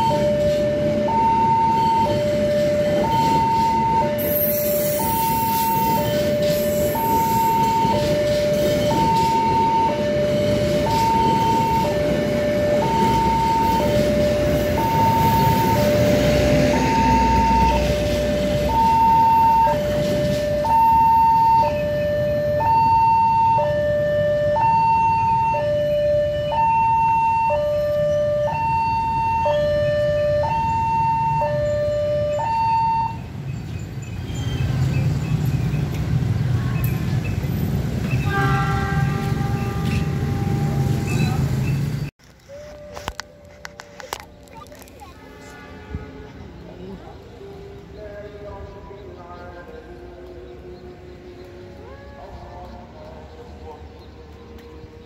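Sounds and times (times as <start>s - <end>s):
train wheels rumbling on rails: 0.0s - 22.7s, 33.2s - 55.0s
higher alarm tones: 0.0s - 33.3s
level-crossing two-tone alarm: 0.0s - 33.3s.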